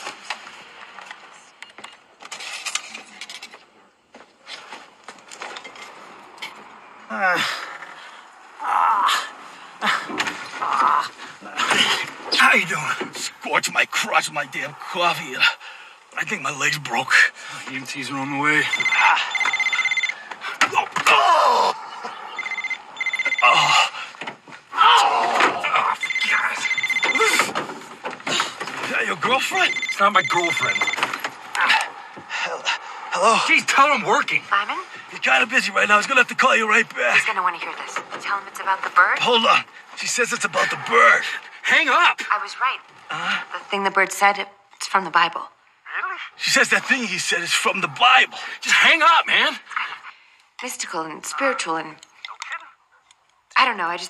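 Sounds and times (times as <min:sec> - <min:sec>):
men groaning: 0:07.1 - 0:08.0, 0:08.6 - 0:12.2, 0:20.5 - 0:22.3, 0:24.7 - 0:27.6
phone ringing with trilling tone: 0:18.5 - 0:20.4, 0:22.0 - 0:24.0, 0:25.7 - 0:27.6, 0:29.2 - 0:31.4.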